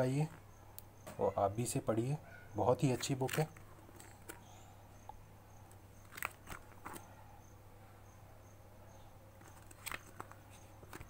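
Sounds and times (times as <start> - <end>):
low steady hum: 0.0 - 11.0
book pages rustling: 2.8 - 4.5, 6.1 - 7.1, 9.4 - 11.0.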